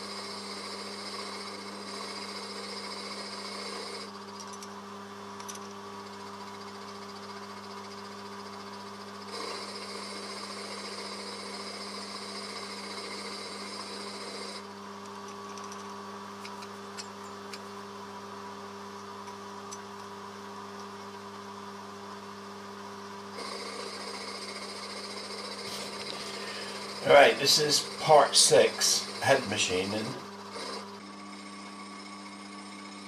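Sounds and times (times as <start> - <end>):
milling machine motor hum: 0.0 - 33.0
end mill cutting metal: 23.4 - 33.0.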